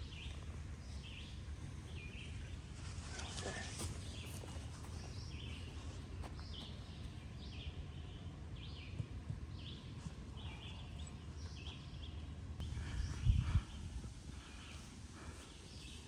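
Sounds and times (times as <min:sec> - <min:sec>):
steady low rumble: 0:00.0 - 0:16.0
bird chirping: 0:04.0 - 0:16.0.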